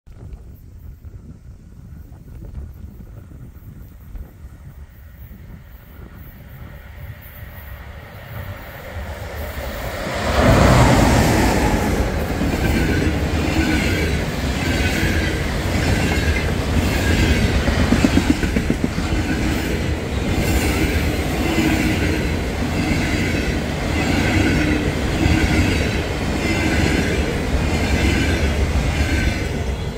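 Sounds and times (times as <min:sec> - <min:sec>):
electric locomotive passing: 0:00.8 - 0:29.9
train wheels clattering: 0:11.6 - 0:29.9.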